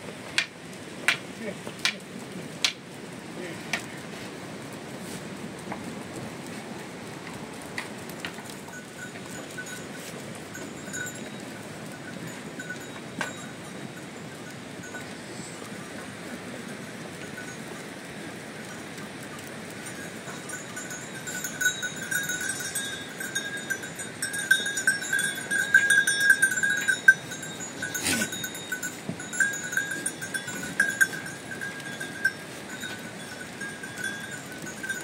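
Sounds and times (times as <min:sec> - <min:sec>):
livestock bells clinking: 0:08.2 - 0:35.0.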